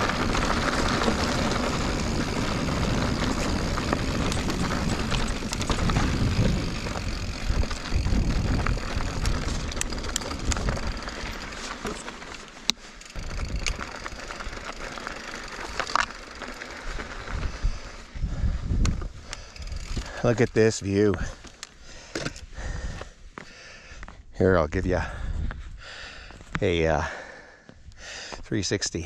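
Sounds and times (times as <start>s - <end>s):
bike chain and frame rattling: 0.0s - 22.4s
wind and tyre rumble: 0.0s - 28.0s.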